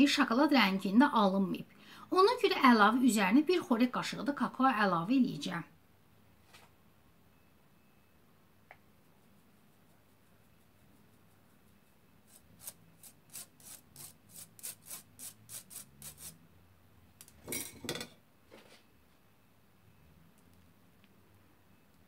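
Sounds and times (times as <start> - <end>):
powder rubbed through metal sieve: 9.1 - 16.4.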